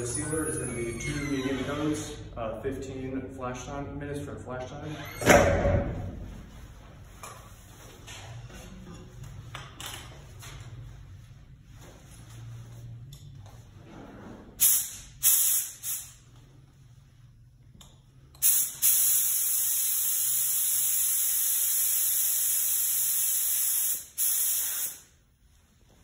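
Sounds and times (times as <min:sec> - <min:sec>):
spray gun air hissing: 0:14.6 - 0:16.2, 0:18.4 - 0:25.2.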